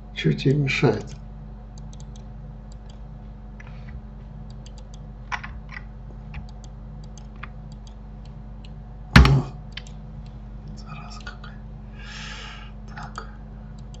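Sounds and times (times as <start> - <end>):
low steady hum: 0.0 - 14.0
keyboard and mouse clicking: 1.8 - 3.0, 4.5 - 8.0, 9.7 - 10.4, 13.1 - 14.0
loud thump: 9.2 - 9.5.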